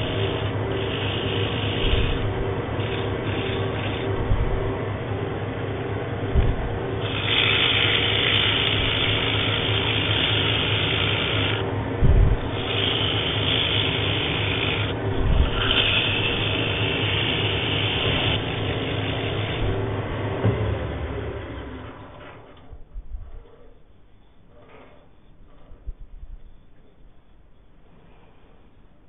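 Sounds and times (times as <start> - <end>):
sandpaper hissing on spinning wood: 0.0 - 4.7, 6.5 - 11.7, 12.4 - 19.9
wood lathe humming: 0.0 - 22.2
dull low thumps: 4.2 - 4.8, 6.2 - 7.0, 11.9 - 12.6.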